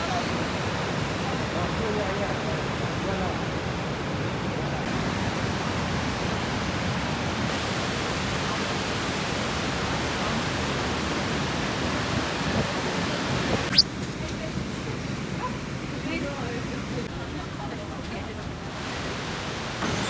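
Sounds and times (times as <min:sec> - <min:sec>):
waterfall rushing: 0:00.0 - 0:13.8.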